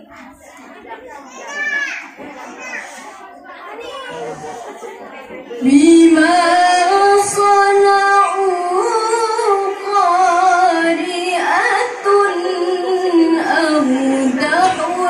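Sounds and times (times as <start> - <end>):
woman reciting melodically: 5.6 - 15.0.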